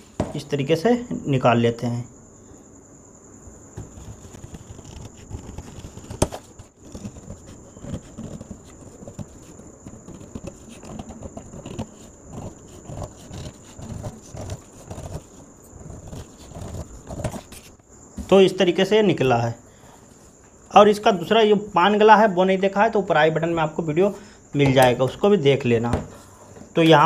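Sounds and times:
paper rustling: 3.8 - 18.4
scissors snipping paper: 4.4 - 17.6.

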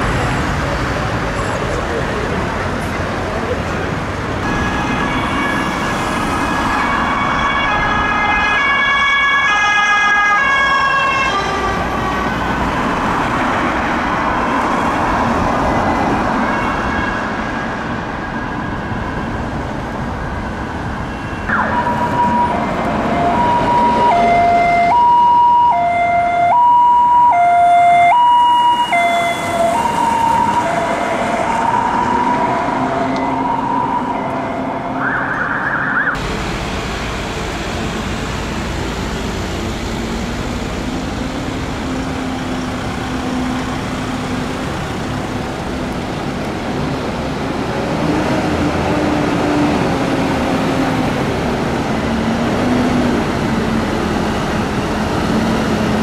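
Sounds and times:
traffic noise: 0.0 - 56.0
two-tone emergency siren: 4.4 - 12.5, 21.1 - 36.2.

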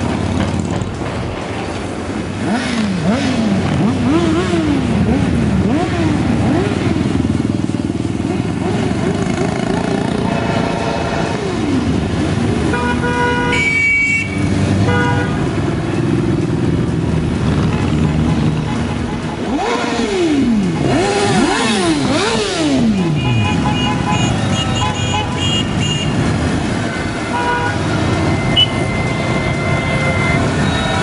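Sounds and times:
motorcycle engines: 0.0 - 31.0
motorcycles revving past: 2.3 - 12.6, 15.6 - 24.5
horns honking: 9.6 - 16.1, 17.5 - 31.0.

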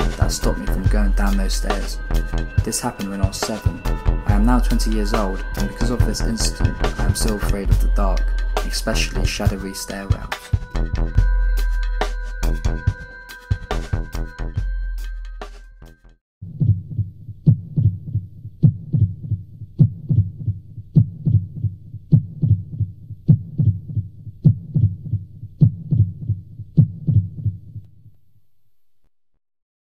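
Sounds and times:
slow heartbeat thumps: 0.0 - 9.5, 16.4 - 27.8.

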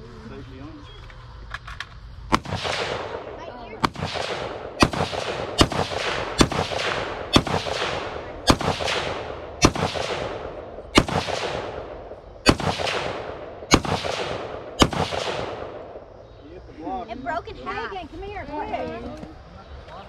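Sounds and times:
gunshots with echo: 2.3 - 16.1.

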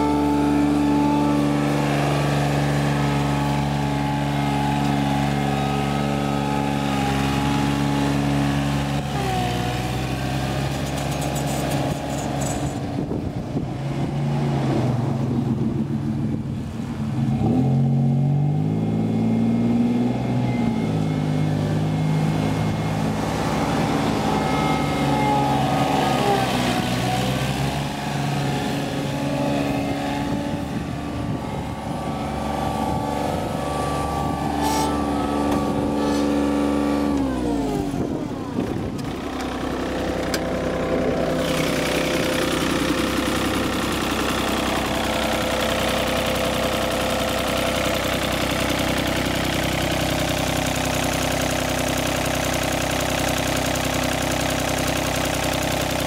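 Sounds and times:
diesel mower engine running: 0.0 - 56.0.

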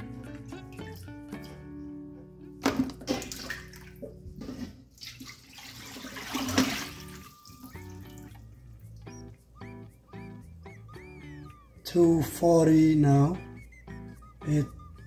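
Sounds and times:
guitar music: 0.0 - 4.5, 6.7 - 15.0
water splashing in metal sink: 2.6 - 8.3
water poured out of bowl: 2.7 - 8.3.

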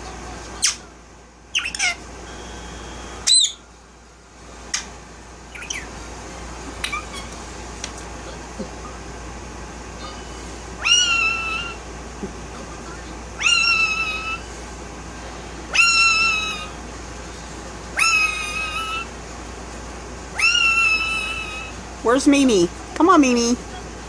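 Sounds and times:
parakeet calling: 1.5 - 2.1, 3.2 - 3.7, 5.5 - 6.1, 6.8 - 7.4, 10.0 - 11.8, 13.4 - 14.5, 15.7 - 16.8, 17.9 - 19.2, 20.3 - 21.8.

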